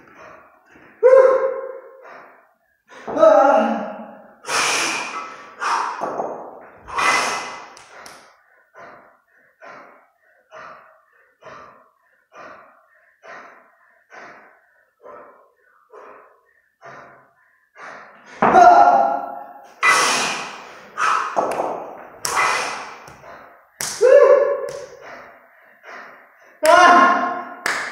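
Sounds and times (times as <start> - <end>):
man breathing heavily: 0.0 - 3.1, 4.2 - 18.4, 19.4 - 23.9, 24.5 - 26.6.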